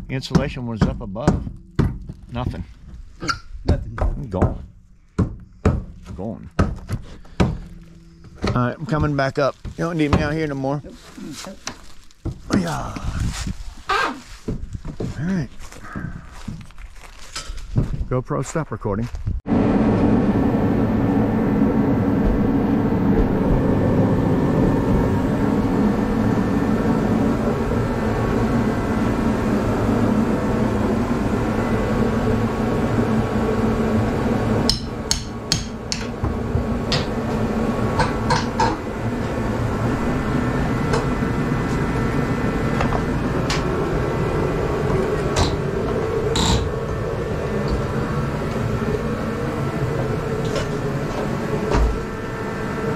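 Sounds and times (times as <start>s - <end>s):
steady hum: 0.0s - 13.6s, 19.5s - 52.9s
sharp knocks: 0.3s - 10.4s.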